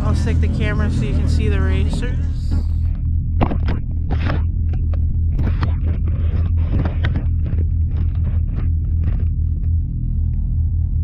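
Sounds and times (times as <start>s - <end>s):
vehicle engine droning: 0.0s - 11.0s
sharp knocks and rattles: 1.9s - 9.8s.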